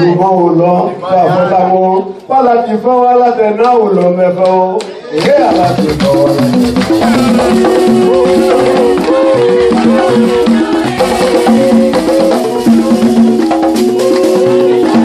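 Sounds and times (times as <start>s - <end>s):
rattles and percussion: 5.2s - 15.0s.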